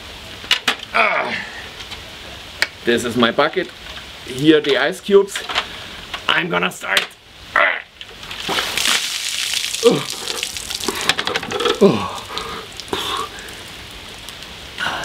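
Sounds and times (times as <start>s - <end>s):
rain falling: 0.0s - 6.5s, 7.1s - 15.0s
water splashing from bucket: 8.3s - 14.4s.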